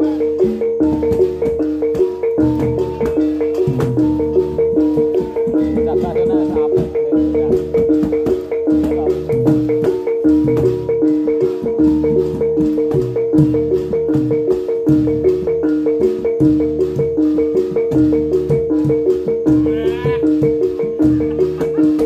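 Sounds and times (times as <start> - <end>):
kettle gongs and metallophones: 0.0 - 22.0.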